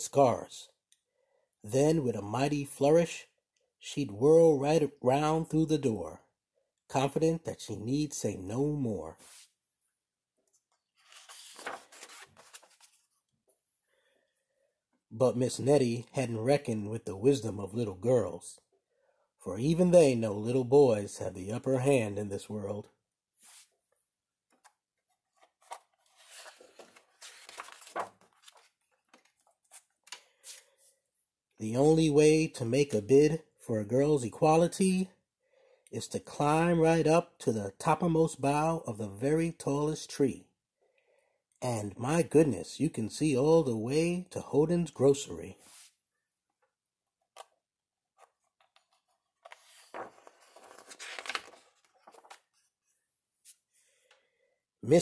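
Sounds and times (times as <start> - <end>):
book page turning: 9.2 - 9.6, 10.5 - 13.3, 24.5 - 30.9, 45.6 - 46.0, 47.2 - 53.6.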